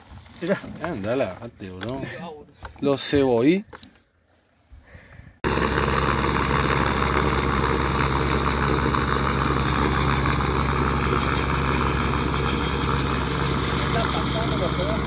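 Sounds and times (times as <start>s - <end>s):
helicopter engine and rotor drone: 5.4s - 15.0s.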